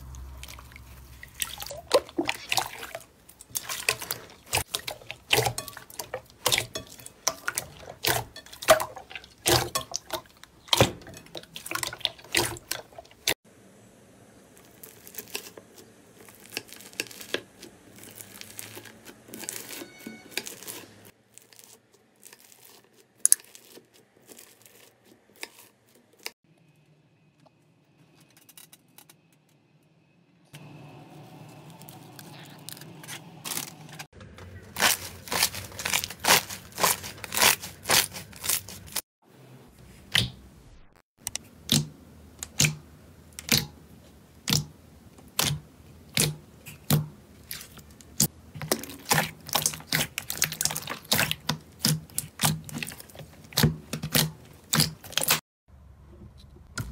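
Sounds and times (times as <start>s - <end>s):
crunchy slime crackling: 14.5s - 26.4s, 31.1s - 39.0s, 45.3s - 55.4s.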